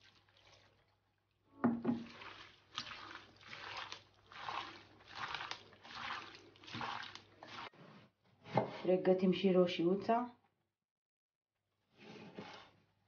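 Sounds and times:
wet squelch of hands kneading meat: 2.0s - 7.7s.

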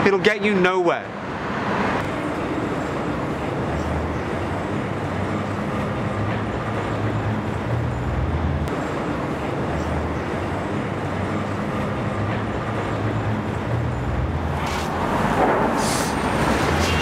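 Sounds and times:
rustling hisses: 15.8s - 16.2s.

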